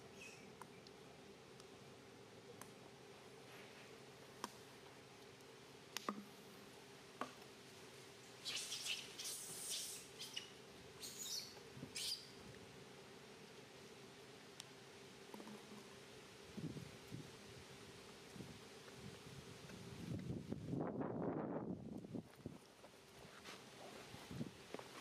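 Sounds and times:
baby monkey squealing: 0:08.4 - 0:12.3.

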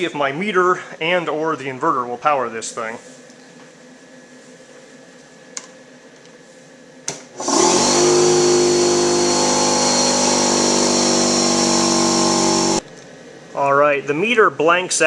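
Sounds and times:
air compressor motor running: 0:07.4 - 0:12.8.

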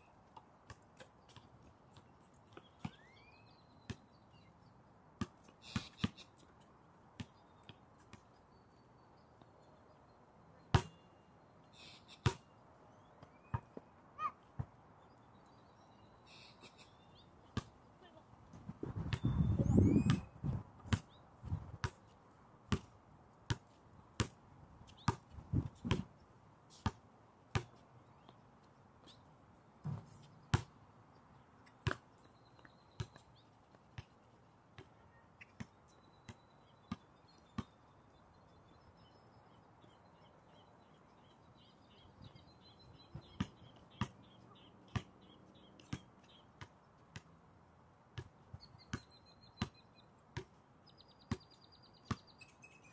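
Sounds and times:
faint bird chirps: 0:01.2 - 0:04.8, 0:07.2 - 0:14.4, 0:15.0 - 0:18.2, 0:19.0 - 0:21.3, 0:34.9 - 0:46.5, 0:48.5 - 0:50.1, 0:50.8 - 0:52.9.

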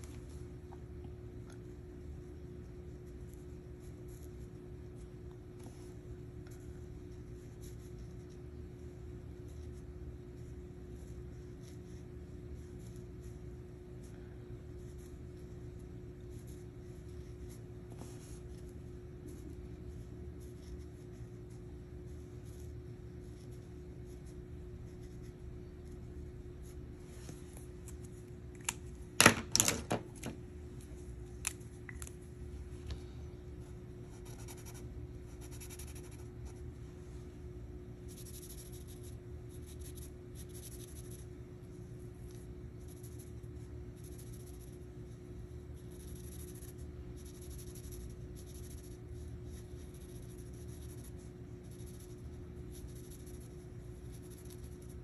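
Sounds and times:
faint steady hum: 0:00.0 - 0:55.0
marker scratching on paper: 0:14.8 - 0:26.0, 0:34.1 - 0:36.6, 0:38.0 - 0:45.2, 0:45.8 - 0:55.0.

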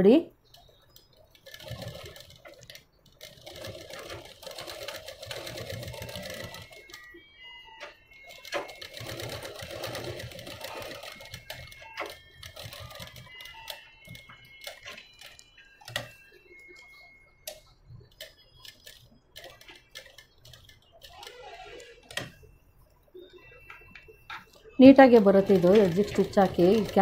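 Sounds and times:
sewing machine needle clattering: 0:00.5 - 0:06.9, 0:24.8 - 0:27.0.

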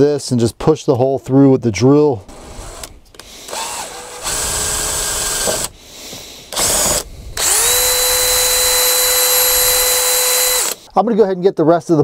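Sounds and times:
cordless drill boring rubber: 0:02.3 - 0:05.8, 0:06.5 - 0:10.9.

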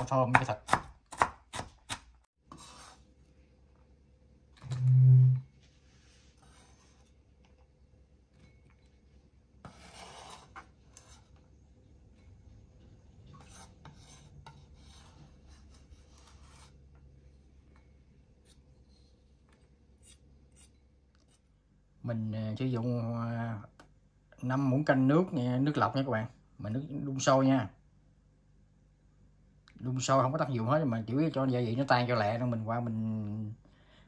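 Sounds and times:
knife scraping cutting board: 0:01.1 - 0:03.3, 0:06.0 - 0:07.3, 0:09.6 - 0:11.4, 0:13.3 - 0:16.8, 0:18.4 - 0:21.4.

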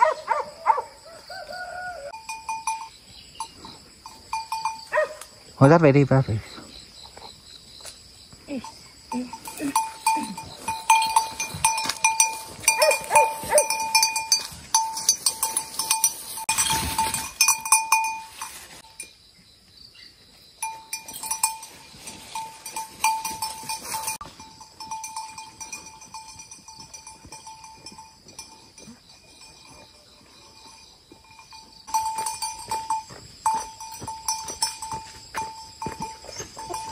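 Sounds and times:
livestock bell clanking: 0:02.1 - 0:06.3, 0:08.5 - 0:19.2, 0:20.6 - 0:36.9
rustling noise: 0:15.6 - 0:18.9.

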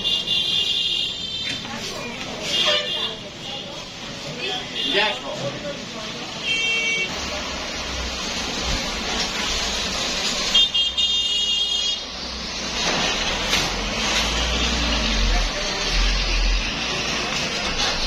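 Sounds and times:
low traffic rumble: 0:00.0 - 0:18.0
vehicle horn: 0:02.5 - 0:03.2, 0:06.4 - 0:07.2, 0:10.5 - 0:12.1
vehicle passing: 0:12.2 - 0:18.0.

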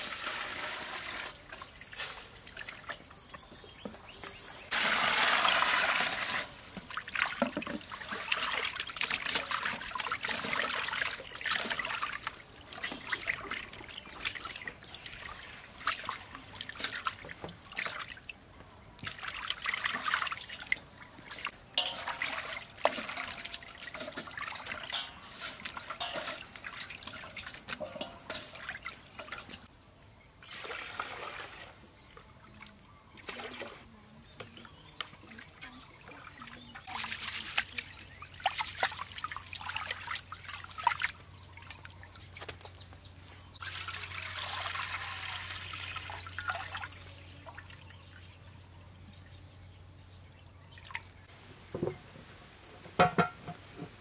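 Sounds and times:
water pouring: 0:00.0 - 0:03.1, 0:04.7 - 0:18.4, 0:19.0 - 0:29.7, 0:30.4 - 0:31.8, 0:43.5 - 0:47.9
water sloshing in a steel basin: 0:00.0 - 0:29.7, 0:30.4 - 0:49.1, 0:50.7 - 0:52.1, 0:52.8 - 0:54.0
water dripping and trickling: 0:01.1 - 0:04.1, 0:04.7 - 0:29.7, 0:34.4 - 0:48.5, 0:50.7 - 0:52.0.

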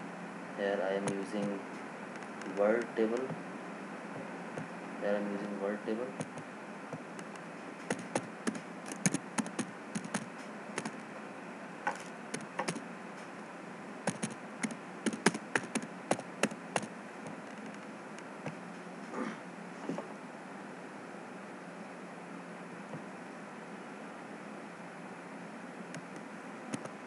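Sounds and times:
low hiss: 0:00.0 - 0:27.0
keyboard keystrokes: 0:07.2 - 0:11.0, 0:11.9 - 0:12.8, 0:14.1 - 0:16.9.

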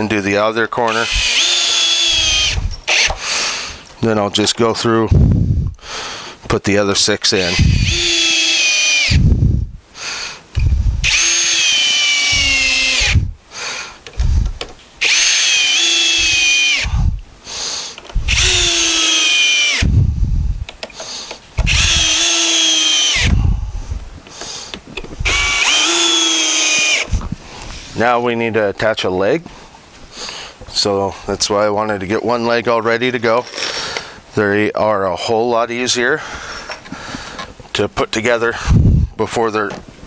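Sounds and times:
cordless drill driving screws: 0:00.9 - 0:03.6, 0:07.4 - 0:09.2, 0:10.6 - 0:13.3, 0:14.2 - 0:17.0, 0:18.2 - 0:19.9, 0:20.8 - 0:23.5, 0:25.2 - 0:27.1, 0:33.4 - 0:34.1.

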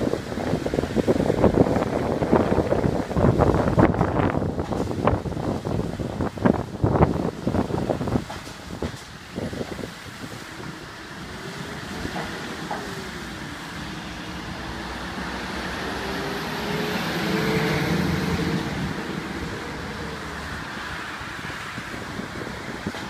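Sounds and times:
traffic on wet road: 0:00.0 - 0:23.0
water spraying from hydrant: 0:00.0 - 0:23.0
light truck passing: 0:10.0 - 0:23.0.

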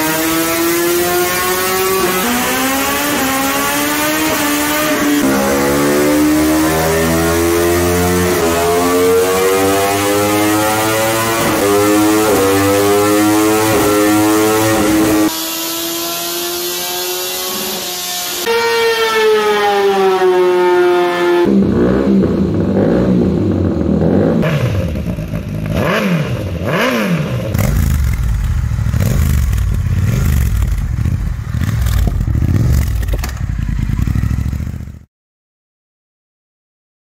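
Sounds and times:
motorcycle engine revving: 0:00.0 - 0:35.1.

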